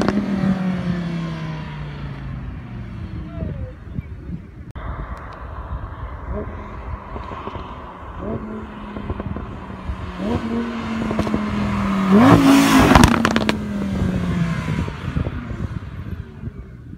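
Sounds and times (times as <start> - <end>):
sports car engine revving: 0.0 - 3.2, 6.0 - 16.8
exhaust crackles and pops: 4.7 - 13.8.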